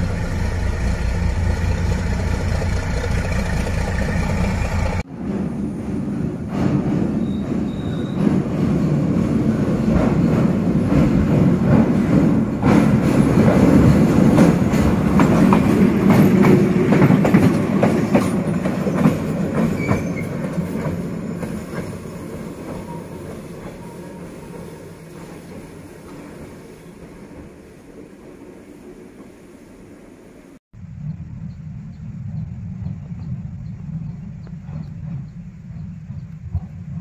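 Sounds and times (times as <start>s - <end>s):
diesel locomotive engine running: 0.0s - 28.7s, 30.8s - 37.0s
train wheels clacking over rail joints: 1.5s - 28.4s.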